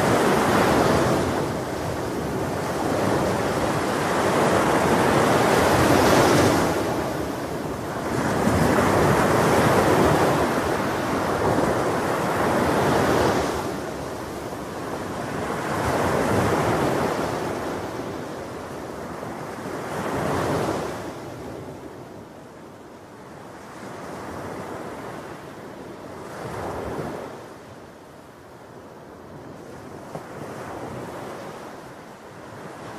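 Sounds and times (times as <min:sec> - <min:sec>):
sea surf breaking on beach: 0:00.0 - 0:22.1.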